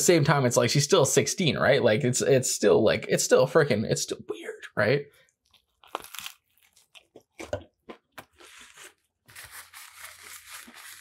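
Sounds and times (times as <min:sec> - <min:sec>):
crunching fried chicken: 0:05.3 - 0:11.0.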